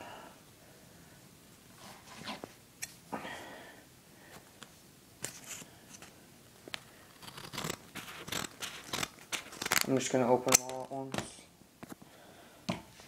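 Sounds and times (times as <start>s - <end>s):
scissors snipping paper: 7.1s - 9.9s.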